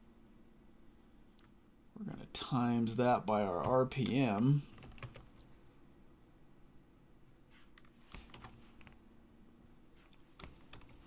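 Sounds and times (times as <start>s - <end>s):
low steady hum: 0.0s - 11.0s
faint keyboard keystrokes: 3.6s - 5.6s, 10.0s - 11.0s.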